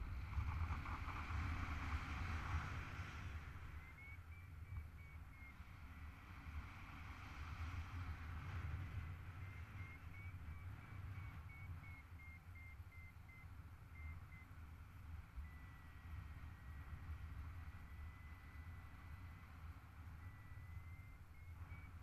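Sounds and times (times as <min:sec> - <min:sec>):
wind rushing on microphone: 0:00.0 - 0:13.4
variometer beeping: 0:09.4 - 0:14.6, 0:15.4 - 0:19.4, 0:20.1 - 0:22.0.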